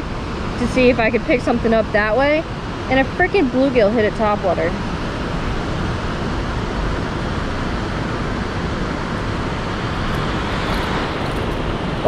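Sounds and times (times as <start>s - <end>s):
river water rushing: 4.8s - 12.0s.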